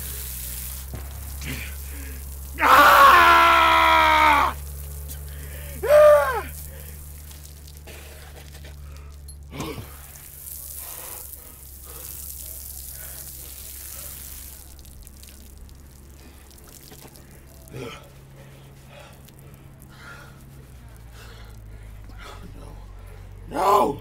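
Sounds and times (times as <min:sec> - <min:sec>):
shower water splashing: 0:00.0 - 0:21.8
man groaning: 0:05.6 - 0:06.6, 0:17.7 - 0:18.1, 0:23.5 - 0:24.0.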